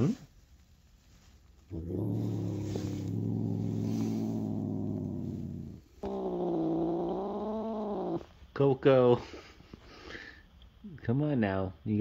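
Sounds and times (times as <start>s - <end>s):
cat growling: 1.7s - 8.4s.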